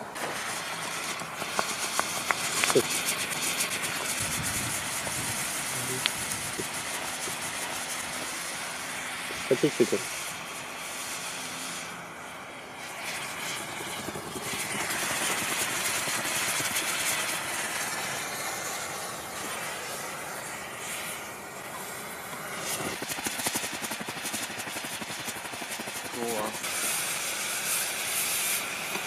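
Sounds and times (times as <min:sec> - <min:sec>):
molten metal hissing and sizzling: 0:00.0 - 0:29.0
crackling spits: 0:00.2 - 0:08.4.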